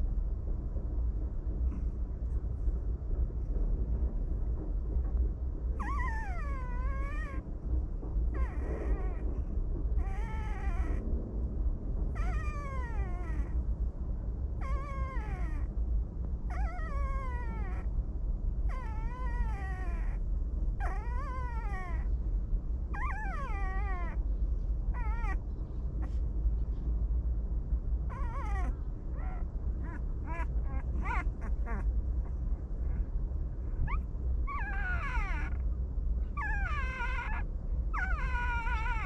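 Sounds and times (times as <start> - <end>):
steady low rumble: 0.0 - 39.0
puppies whining and crying: 5.8 - 7.4, 8.3 - 9.3, 10.0 - 11.0, 12.2 - 13.6, 14.6 - 15.7, 16.5 - 17.9, 18.7 - 20.2, 20.8 - 22.1, 22.9 - 24.2, 24.9 - 25.4, 28.1 - 32.5, 33.8 - 35.7, 36.3 - 39.0.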